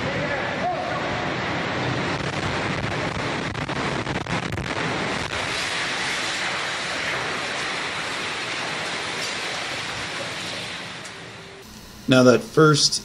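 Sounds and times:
roar of building collapsing: 0.6s - 11.6s
rapid crackles and knocks: 1.6s - 11.6s.

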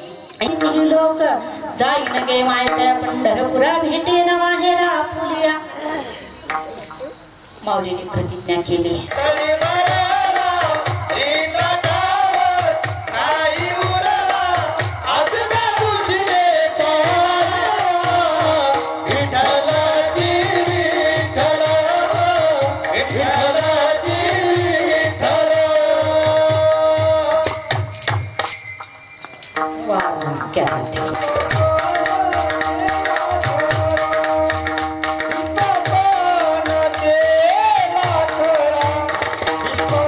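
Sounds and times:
person singing devotional song: 7.7s - 28.4s, 29.9s - 40.0s
hand cymbals jingling: 9.0s - 30.4s, 31.0s - 40.0s
steady drum beat: 9.1s - 29.0s, 30.6s - 40.0s.

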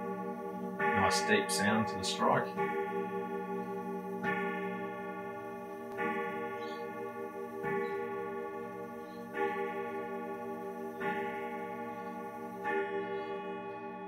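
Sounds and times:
clock gong striking: 0.0s - 13.3s.

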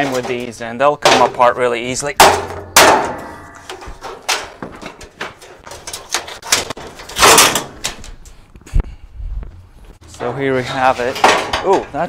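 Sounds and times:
hammer striking plastic panel: 2.2s - 4.4s.

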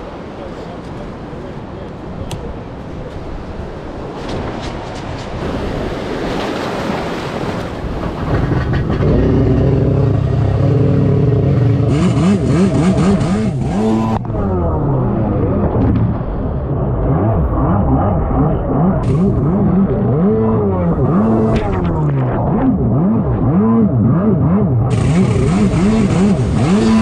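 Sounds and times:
surf noise: 0.0s - 11.2s
jet ski engine revving: 7.8s - 27.0s.

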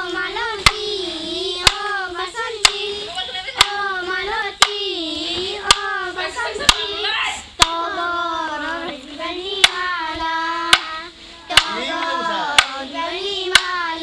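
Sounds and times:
child singing in a high voice: 0.0s - 14.0s
sharp hand clap: 3.6s - 3.8s, 10.7s - 12.8s.

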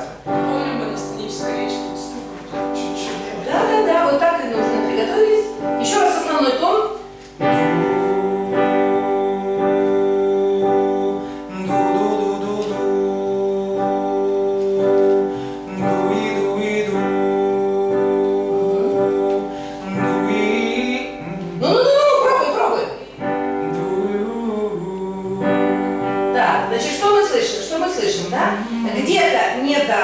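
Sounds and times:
instrumental backing track: 0.0s - 30.0s
person singing: 7.2s - 27.0s.

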